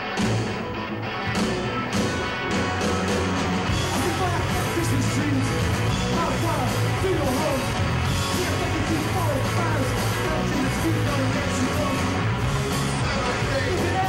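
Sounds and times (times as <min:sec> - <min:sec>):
punk rock music: 0:00.0 - 0:14.0.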